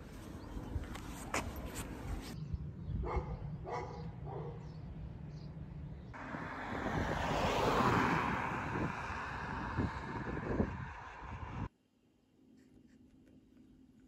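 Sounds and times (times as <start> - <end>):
dog barking: 3.0 - 4.7
rush of noise: 6.2 - 11.7.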